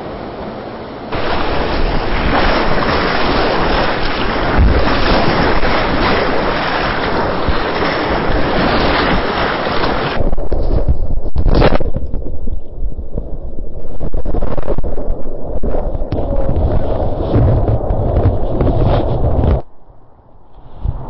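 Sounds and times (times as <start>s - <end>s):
river whitewater roaring: 0.0s - 10.2s
wind buffeting microphone: 1.1s - 21.0s.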